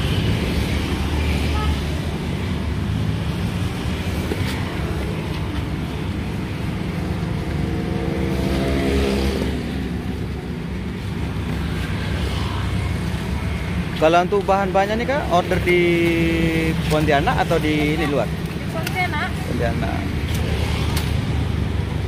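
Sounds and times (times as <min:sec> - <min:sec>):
passing vehicle engine: 0:00.0 - 0:13.9
traffic rumble: 0:00.0 - 0:22.0.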